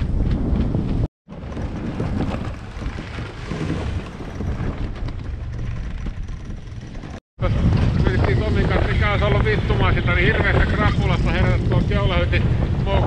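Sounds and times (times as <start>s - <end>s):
wind buffeting microphone: 0.0s - 13.0s
rush of wind and water: 7.4s - 13.0s.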